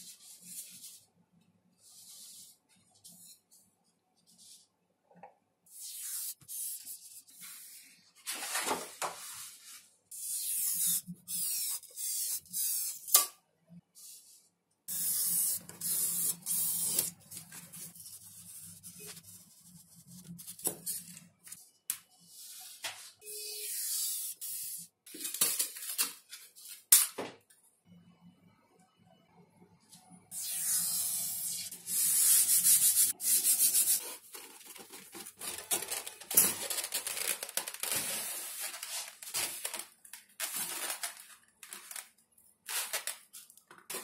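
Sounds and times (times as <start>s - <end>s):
paper rustling: 34.2s - 44.0s.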